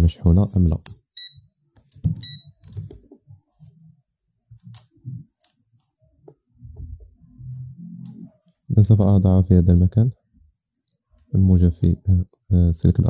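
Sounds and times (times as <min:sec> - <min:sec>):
multimeter high beep: 0:01.2 - 0:01.4, 0:02.2 - 0:02.5.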